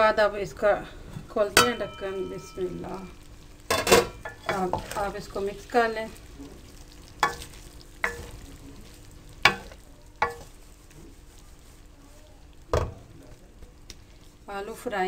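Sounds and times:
spoon scraping metal pan: 0:03.7 - 0:05.8, 0:07.2 - 0:08.5, 0:09.4 - 0:10.6.

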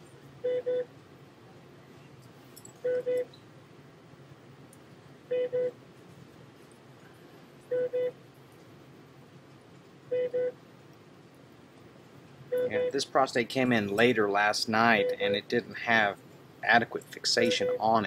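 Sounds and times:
faint steady hum: 0:00.0 - 0:18.0
electronic beeper short beeps: 0:17.4 - 0:17.9.

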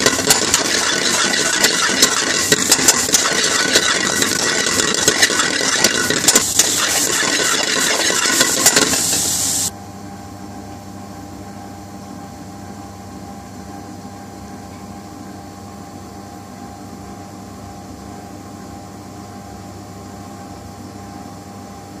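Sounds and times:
metal spoon scraping a pan: 0:00.0 - 0:09.7
steady fan hum: 0:00.0 - 0:18.6
mushrooms sizzling in a pan: 0:05.2 - 0:09.7.

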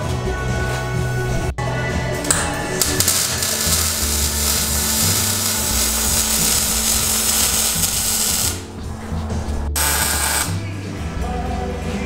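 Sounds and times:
arc welder sizzling and crackling: 0:02.3 - 0:08.7, 0:09.8 - 0:10.6.

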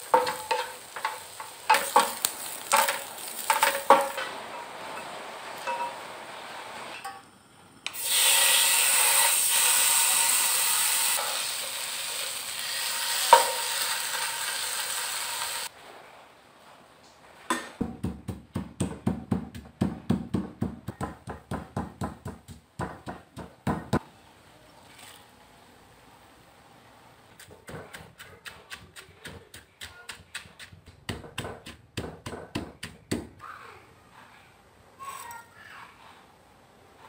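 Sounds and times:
fish paste sizzling in a pan: 0:00.0 - 0:04.1, 0:08.0 - 0:15.7
wooden spatula stirring: 0:00.0 - 0:04.3
mortar and pestle pounding: 0:17.8 - 0:24.0, 0:27.4 - 0:33.4.

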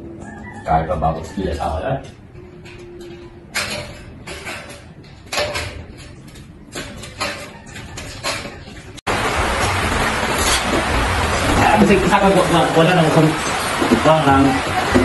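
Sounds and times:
metal channels knocking and rattling: 0:01.1 - 0:09.0
loud steady noise: 0:08.0 - 0:15.0.

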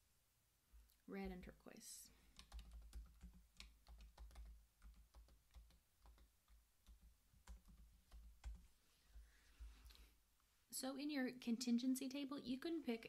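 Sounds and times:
faint keyboard typing: 0:02.3 - 0:10.1.

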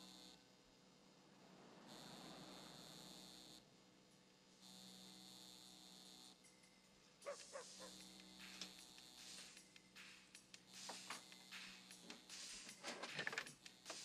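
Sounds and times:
neon sign buzzing: 0:04.6 - 0:06.5, 0:07.3 - 0:12.8.

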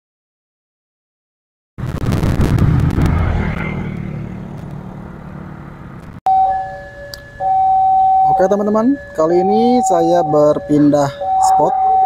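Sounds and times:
vehicle passing rumble: 0:01.8 - 0:06.2.

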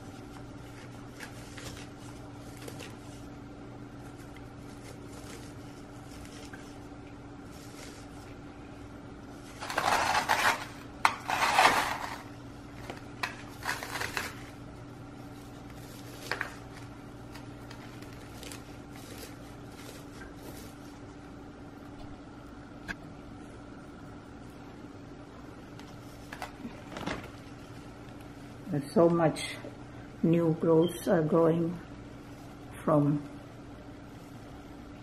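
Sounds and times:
rustling scrapes: 0:00.0 - 0:03.4, 0:04.0 - 0:08.4, 0:09.3 - 0:14.6, 0:15.3 - 0:21.0.

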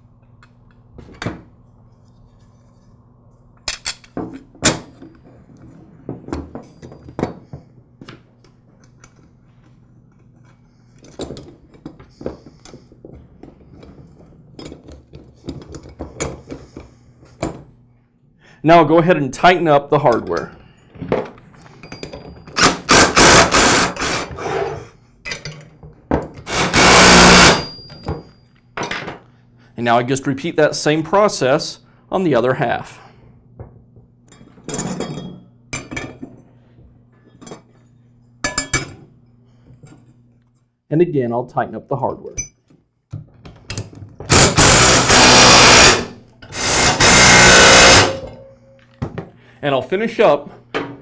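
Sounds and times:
impact driver rattling: 0:22.6 - 0:24.3, 0:26.4 - 0:27.7, 0:44.3 - 0:48.3.

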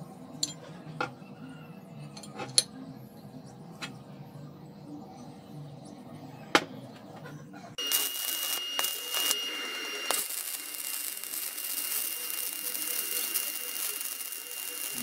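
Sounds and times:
sharp welding pops: 0:07.8 - 0:15.0
welding arc crackling and sizzling: 0:07.8 - 0:15.0.

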